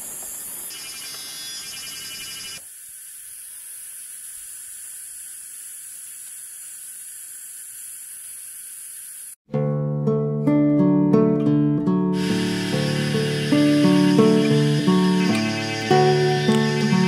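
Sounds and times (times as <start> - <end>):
rain falling in a forest: 0.0 - 5.0.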